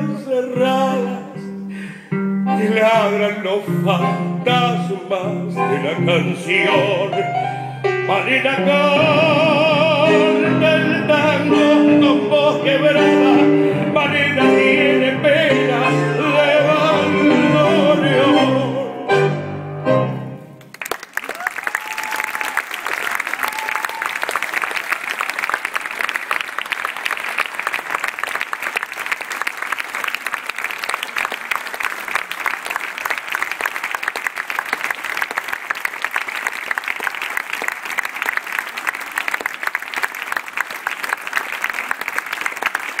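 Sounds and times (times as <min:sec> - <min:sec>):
audience applauding: 0:20.6 - 0:43.0.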